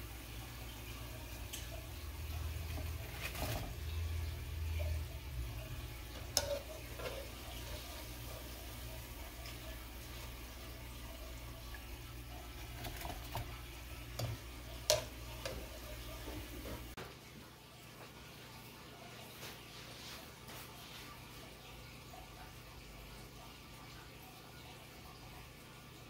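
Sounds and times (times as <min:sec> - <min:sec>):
oil sizzling: 0:00.0 - 0:17.0
skimmer stirring in oil: 0:01.5 - 0:17.0.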